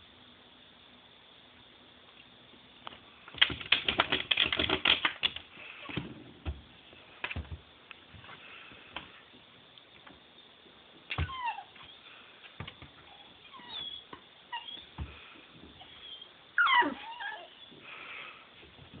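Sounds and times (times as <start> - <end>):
puppy whining: 11.1 - 12.1, 13.0 - 15.2, 15.8 - 17.8.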